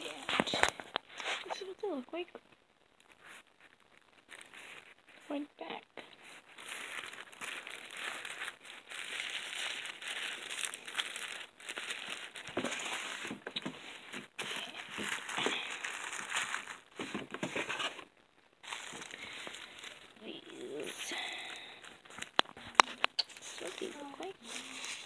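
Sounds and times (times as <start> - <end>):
plastic wrappers crinkling: 0.0 - 1.7, 3.0 - 5.3, 6.0 - 25.0.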